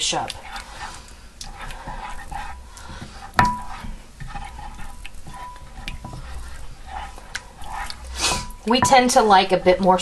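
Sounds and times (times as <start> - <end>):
wooden spoon scraping glass dish: 0.0 - 10.0
spoon knocking on glass: 8.3 - 9.4.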